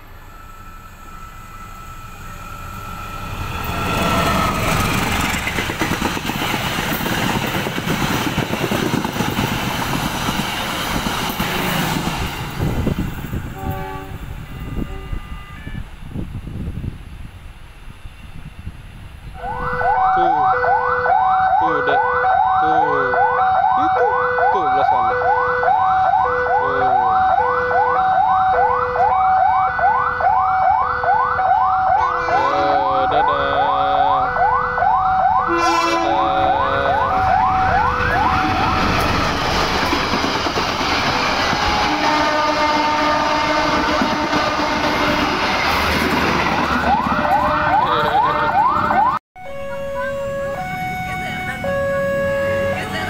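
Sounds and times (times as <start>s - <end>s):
passenger train rumbling past: 0.0s - 53.0s
train horn blasts: 11.4s - 12.0s, 13.4s - 16.1s, 19.4s - 23.2s, 32.0s - 34.4s, 35.4s - 38.9s, 41.6s - 45.6s, 49.4s - 53.0s
level crossing electronic alarm: 19.4s - 39.0s, 46.7s - 53.0s.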